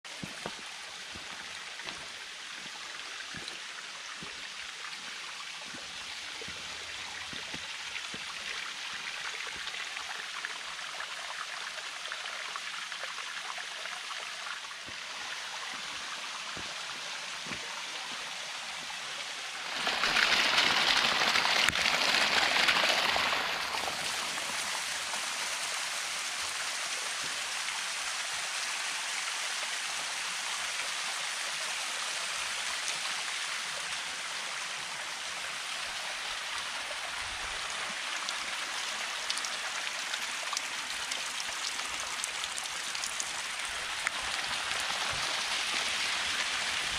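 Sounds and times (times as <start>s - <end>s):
small waterfall splashing: 0.0s - 46.9s.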